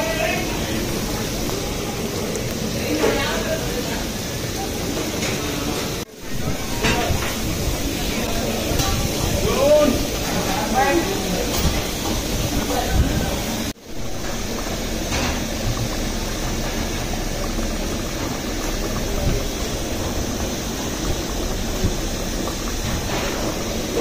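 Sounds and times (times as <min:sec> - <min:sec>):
curry boiling in a metal pot: 0:00.0 - 0:24.0.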